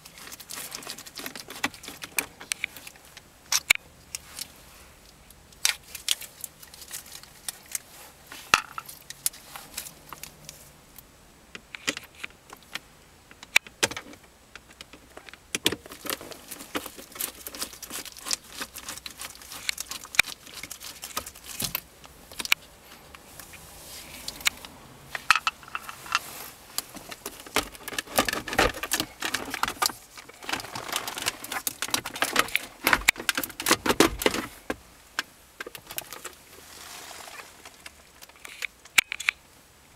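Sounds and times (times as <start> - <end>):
plastic trim clicking and rattling: 26.8 - 34.5.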